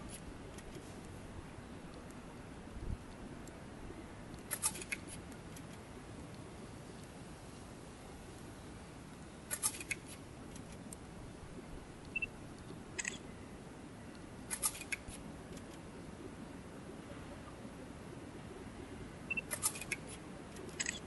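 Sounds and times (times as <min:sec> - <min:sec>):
low hiss: 0:00.0 - 0:21.0
faint beep: 0:12.1 - 0:12.3, 0:19.3 - 0:19.5.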